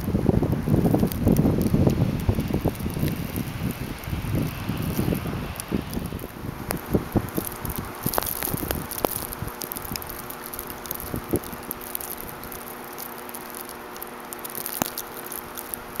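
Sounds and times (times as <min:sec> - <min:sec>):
snowstorm hiss: 0:00.0 - 0:16.0
light ticks: 0:07.4 - 0:16.0.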